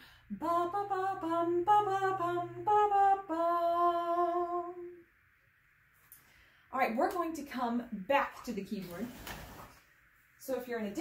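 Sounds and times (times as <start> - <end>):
woman singing unaccompanied: 0.3 - 5.1.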